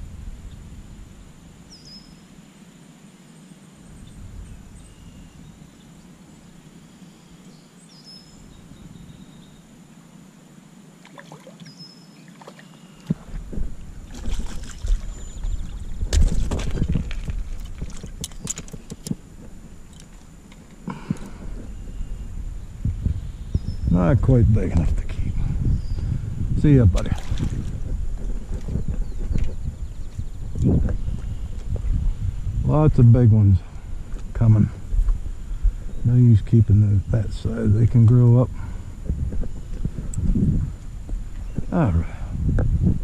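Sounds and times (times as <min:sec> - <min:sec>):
low rumble: 0:13.2 - 0:43.0
clattering on gravel and stones: 0:16.1 - 0:19.2.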